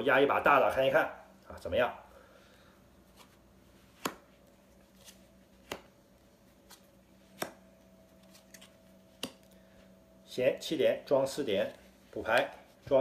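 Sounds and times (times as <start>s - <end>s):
faint steady hum: 0.0s - 13.0s
playing cards clicking: 8.2s - 9.6s.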